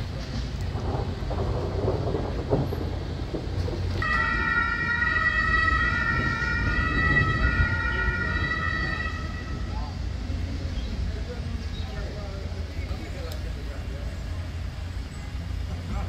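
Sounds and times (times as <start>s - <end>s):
low street rumble: 0.0s - 16.0s
steady high-pitched siren: 4.0s - 10.2s.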